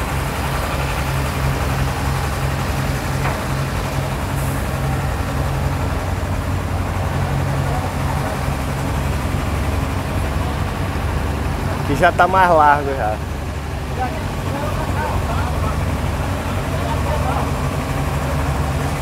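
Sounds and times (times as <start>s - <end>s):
diesel engine humming: 0.0s - 19.0s.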